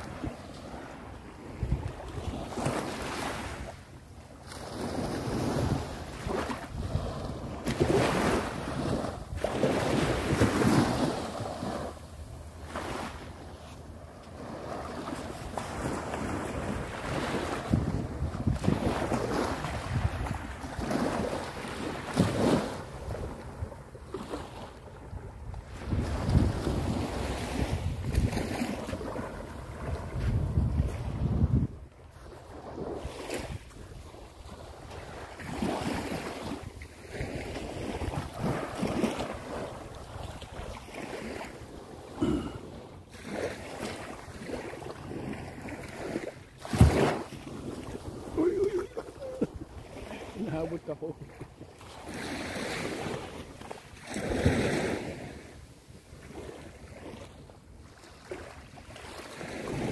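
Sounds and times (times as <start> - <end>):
small waves washing on beach: 0.0 - 59.9
wind gusting on microphone: 15.6 - 23.8, 25.0 - 41.4.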